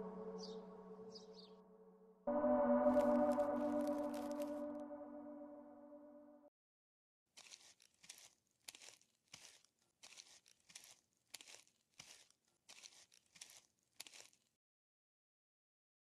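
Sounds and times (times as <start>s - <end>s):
gong ringing: 0.0s - 1.3s, 2.3s - 6.1s.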